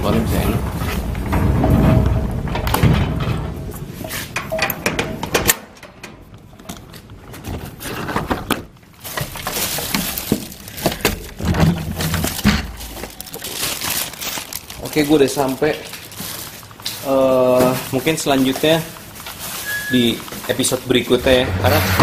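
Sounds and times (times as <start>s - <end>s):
metal gate rattling: 0.0s - 6.4s.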